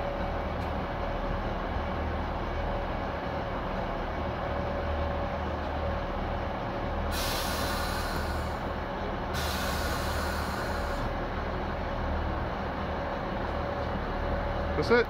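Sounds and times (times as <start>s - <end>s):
diesel engines idling: 0.0s - 15.0s
compressed air hissing: 7.1s - 8.7s, 9.4s - 11.1s.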